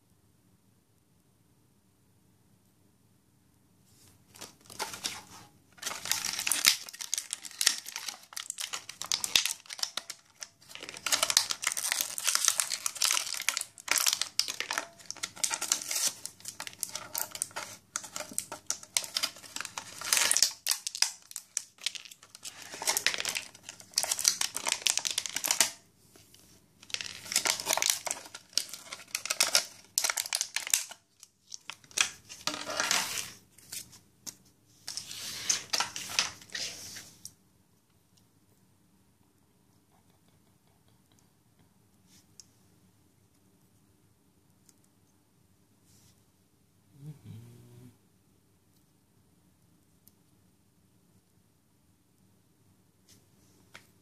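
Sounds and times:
plastic bag crinkling: 4.3 - 25.8, 26.8 - 33.8, 34.9 - 36.7.

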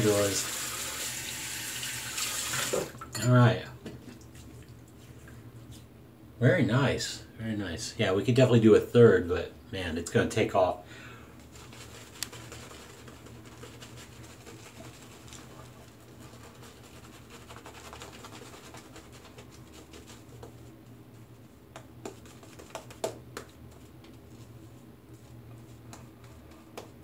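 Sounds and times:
shaving brush rustling on beard: 11.4 - 27.0.

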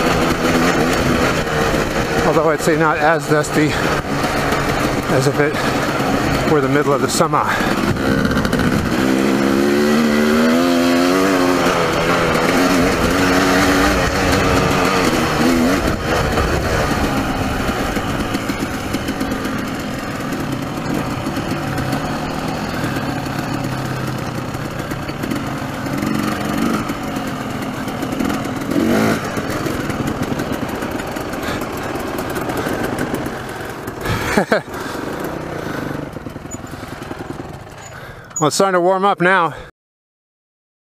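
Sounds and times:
dirt bike engine running: 0.0 - 39.6
wind rushing: 13.6 - 19.6.

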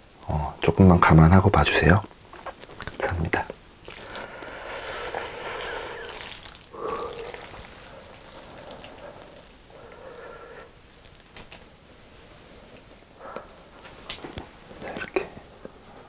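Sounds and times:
noodles squishing and dripping: 1.6 - 15.8.

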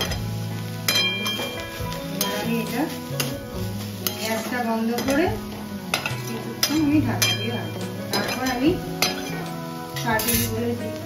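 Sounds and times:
metal spatula scraping a wok: 0.0 - 11.0.

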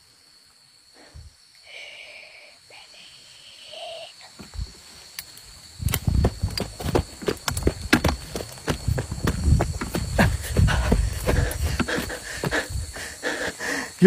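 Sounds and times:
high insect drone: 0.0 - 14.0
footsteps through undergrowth: 4.7 - 12.7.

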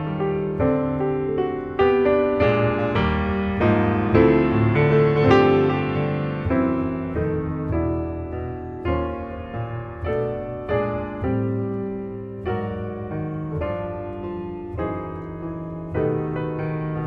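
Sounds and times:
slow piano chords: 0.0 - 17.0.

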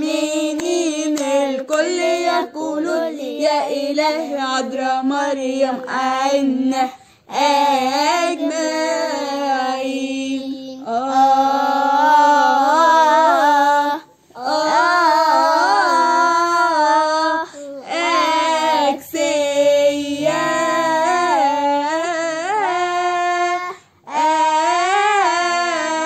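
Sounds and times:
girls singing a hymn: 0.0 - 26.0
singers breathing: 7.0 - 7.3.

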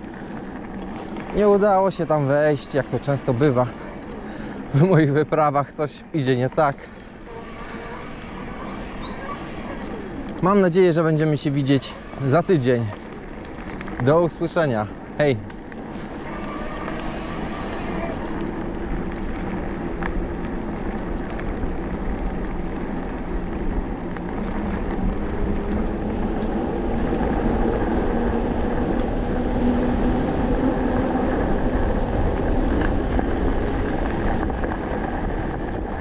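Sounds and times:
tyres rolling on gravel: 0.0 - 36.0
wind on microphone: 7.2 - 14.1.

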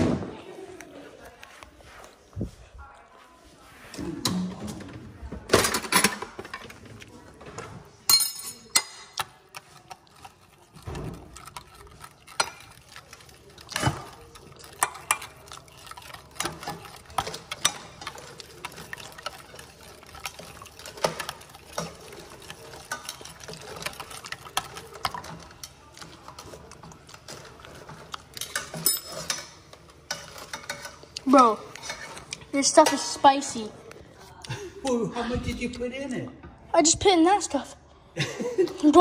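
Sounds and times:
spoon clinking and scraping glass: 8.1 - 9.5, 27.2 - 31.0.

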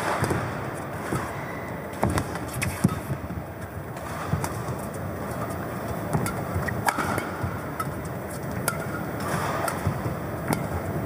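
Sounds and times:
racket striking shuttlecock: 0.0 - 3.2, 6.1 - 10.8
hall background noise: 0.0 - 11.0.

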